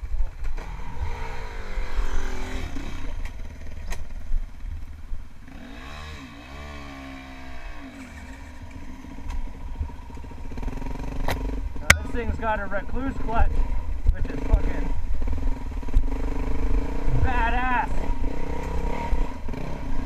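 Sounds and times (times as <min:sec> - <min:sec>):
motorcycle engine revving: 0:00.0 - 0:04.8, 0:05.4 - 0:20.0.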